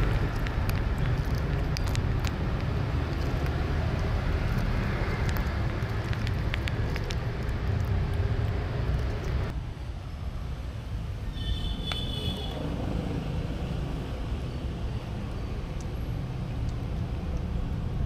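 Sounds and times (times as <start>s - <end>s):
low outdoor rumble: 0.0s - 11.2s.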